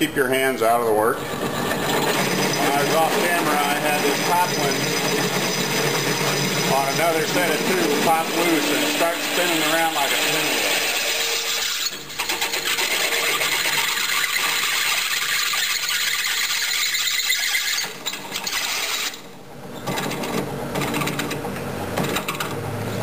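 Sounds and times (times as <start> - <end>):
drill press humming: 1.1 - 19.3
drill bit grinding through metal: 1.6 - 19.2.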